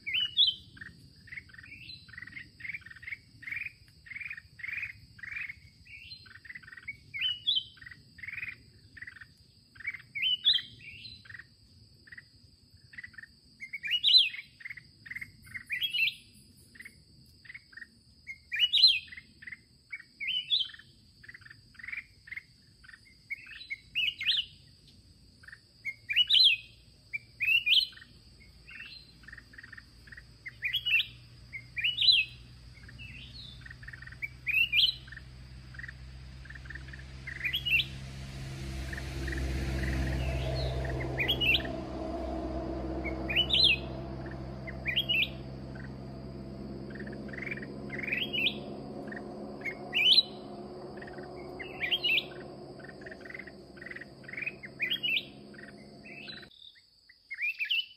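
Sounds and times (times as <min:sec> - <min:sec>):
birds singing chirping phrases: 0:30.5 - 0:56.5.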